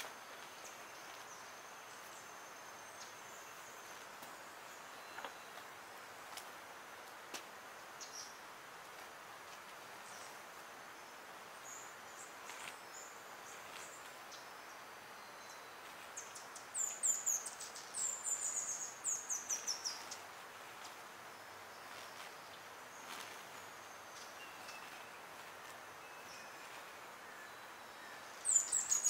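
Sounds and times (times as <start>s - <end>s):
background hiss: 0.0s - 29.0s.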